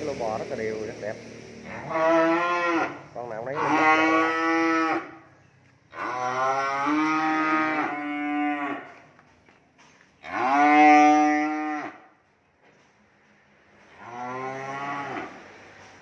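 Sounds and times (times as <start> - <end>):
cattle mooing: 1.6 - 5.2, 5.9 - 9.0, 10.2 - 12.0, 13.9 - 15.4.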